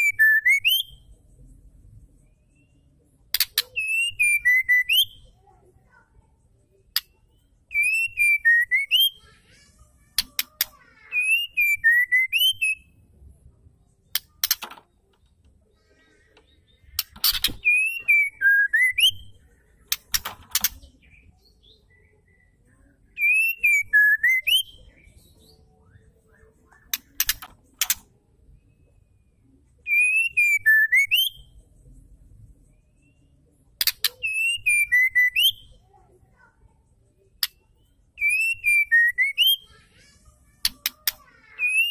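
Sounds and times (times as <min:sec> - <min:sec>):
bird clicks and chatter: 0:03.2 - 0:06.2, 0:06.8 - 0:12.8, 0:14.0 - 0:21.8, 0:23.1 - 0:28.3, 0:33.7 - 0:35.8, 0:37.3 - 0:41.9.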